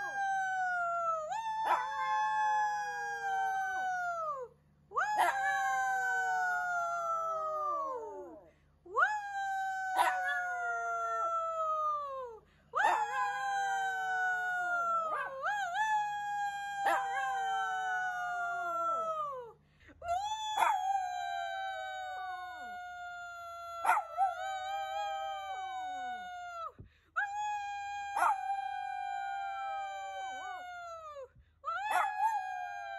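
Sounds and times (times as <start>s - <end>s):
dog howling: 1.6s - 3.8s, 9.7s - 11.6s, 12.8s - 15.6s, 16.5s - 19.2s, 20.2s - 26.6s, 27.4s - 32.9s.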